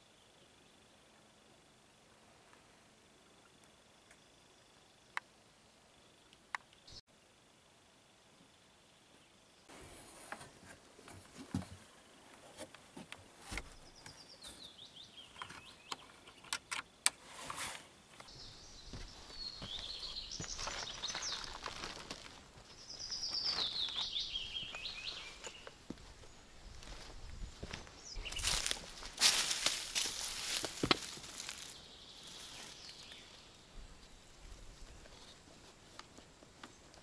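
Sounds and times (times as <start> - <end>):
songbirds singing: 11.4 - 17.3, 18.1 - 35.5.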